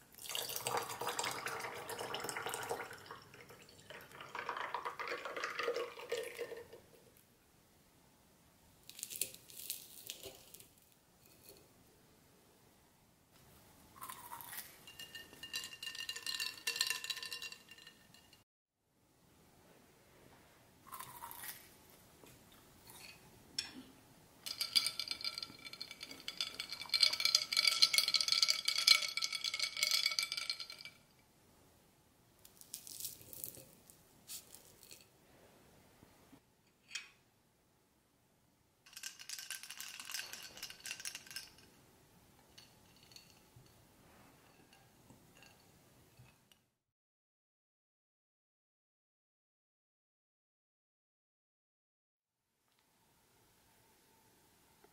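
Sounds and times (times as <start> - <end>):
ice cubes clinking in a glass: 14.0 - 18.4, 24.5 - 31.0, 38.9 - 41.7, 42.5 - 43.5.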